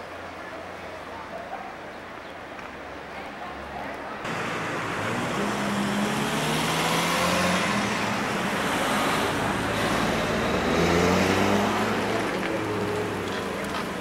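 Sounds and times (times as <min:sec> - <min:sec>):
vehicle engine running: 0:04.3 - 0:14.0.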